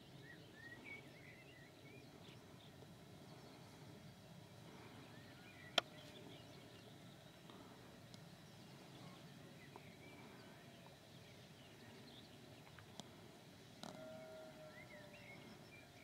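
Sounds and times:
distant birdsong: 0:00.0 - 0:16.0
low steady hiss: 0:00.0 - 0:16.0.

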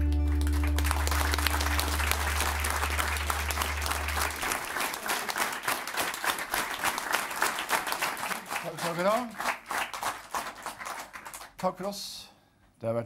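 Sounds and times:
low double bass note: 0:00.0 - 0:04.5
audience applauding: 0:00.0 - 0:11.9.

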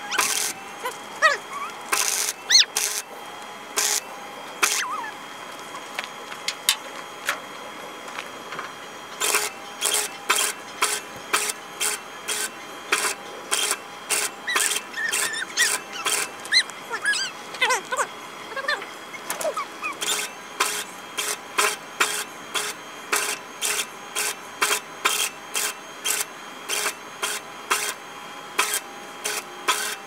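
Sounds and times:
arc welder crackling: 0:00.0 - 0:01.2, 0:01.8 - 0:07.4, 0:09.1 - 0:25.2
high squeaky calls: 0:00.0 - 0:03.0, 0:04.6 - 0:05.2, 0:13.6 - 0:21.0.

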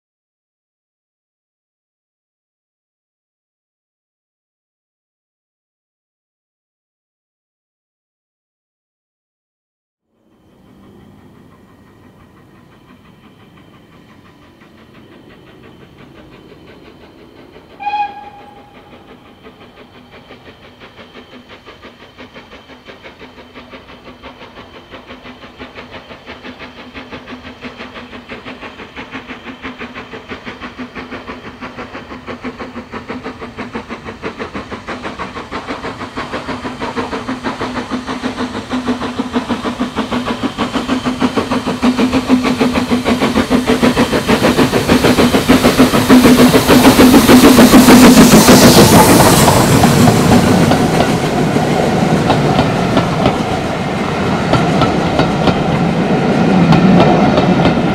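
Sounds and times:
steam locomotive exhaust beats: 0:10.2 - 0:57.9
steam whistle blast: 0:17.7 - 0:19.1.

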